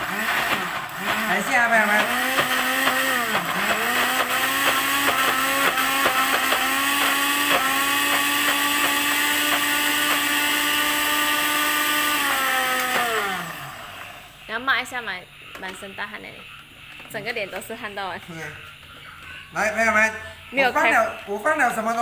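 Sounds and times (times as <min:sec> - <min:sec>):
blender motor whining: 0:00.0 - 0:14.5.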